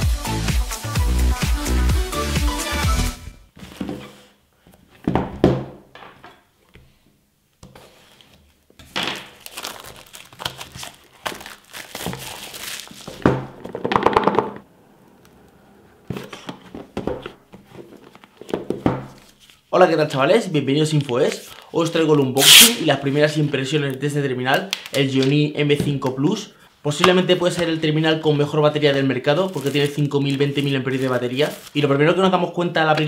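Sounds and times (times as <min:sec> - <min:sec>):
plastic shrink-wrap crinkling and tearing: 0:09.1 - 0:13.2, 0:29.2 - 0:31.9.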